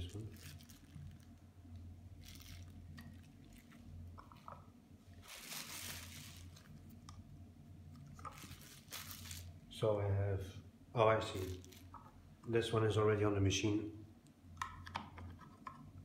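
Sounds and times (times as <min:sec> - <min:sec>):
plastic packaging crinkling: 0:00.0 - 0:07.1, 0:07.9 - 0:09.7, 0:11.3 - 0:12.2.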